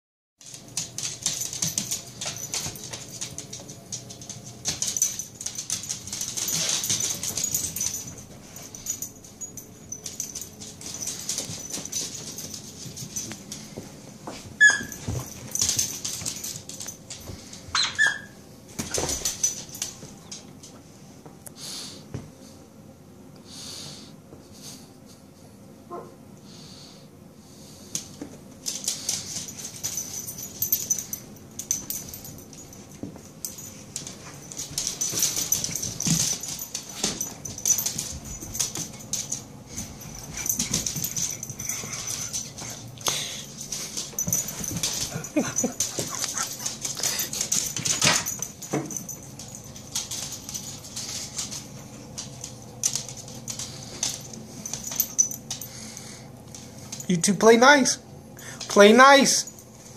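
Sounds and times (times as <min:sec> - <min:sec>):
dog whining: 0:14.6 - 0:15.0, 0:17.8 - 0:18.4.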